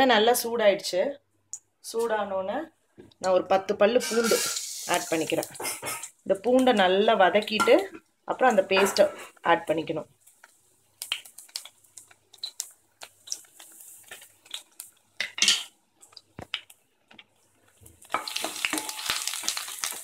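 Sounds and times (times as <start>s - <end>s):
garlic frying in hot oil: 3.8s - 20.0s
spatula scraping a pan: 4.0s - 4.8s.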